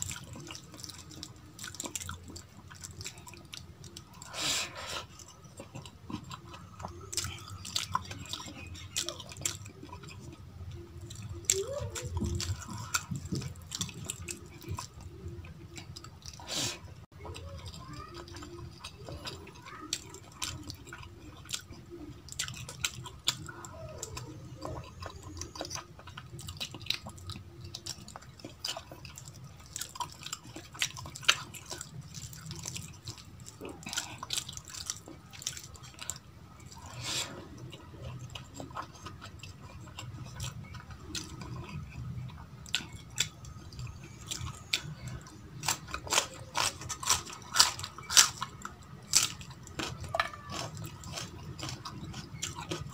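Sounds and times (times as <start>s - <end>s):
wet chewing and lip smacks: 0.0s - 17.6s, 18.2s - 52.9s
chilli crunching: 0.0s - 52.9s.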